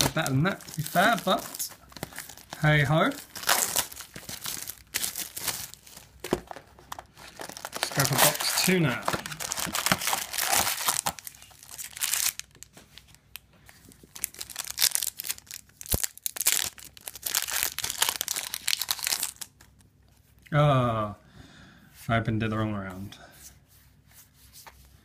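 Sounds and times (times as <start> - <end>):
foil pack tearing open: 0.0 - 12.6, 14.2 - 19.5
foil packs crinkling: 0.0 - 13.1, 14.0 - 19.6.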